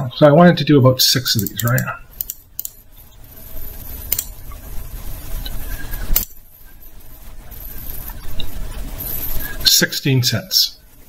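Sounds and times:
computer mouse clicks: 0:01.4 - 0:02.8, 0:04.1 - 0:04.3.

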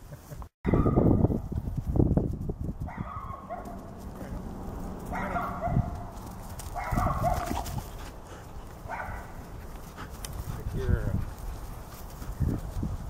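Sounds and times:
dog barking excitedly: 0:02.9 - 0:08.0, 0:08.8 - 0:09.5.

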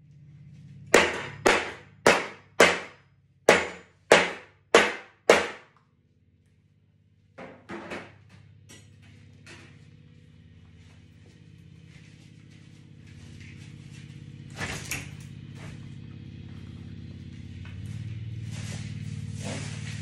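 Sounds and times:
metal spoon banging on baking sheet: 0:01.0 - 0:02.9, 0:03.5 - 0:05.6.

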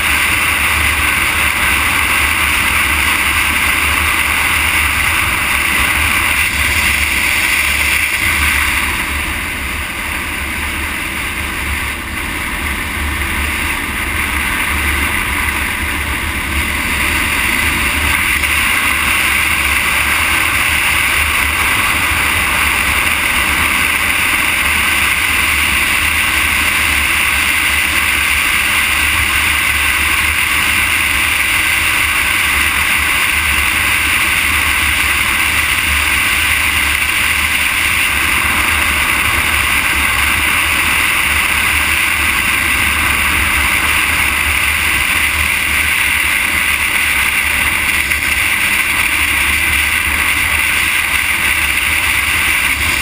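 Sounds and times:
low road rumble: 0:00.0 - 0:53.0.

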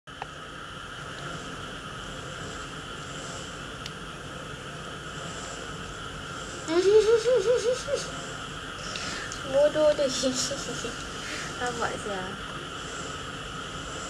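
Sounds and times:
steady background hiss: 0:00.1 - 0:14.0
wavering voice-like sound: 0:06.7 - 0:08.4.

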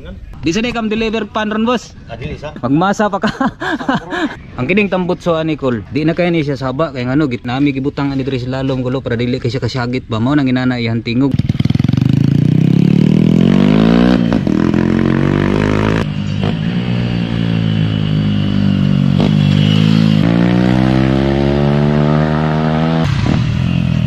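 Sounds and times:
motorcycle engine revving: 0:11.3 - 0:24.0.

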